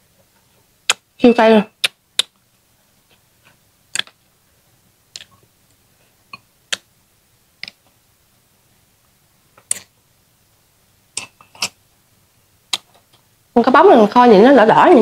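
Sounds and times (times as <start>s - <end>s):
person chewing: 3.0s - 4.2s, 5.1s - 5.4s, 9.6s - 9.9s.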